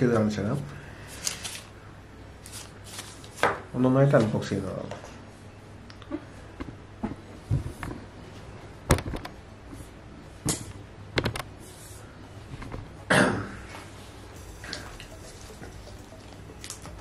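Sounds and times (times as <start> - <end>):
packaging scraping rustle: 1.1 - 1.7, 2.4 - 3.4.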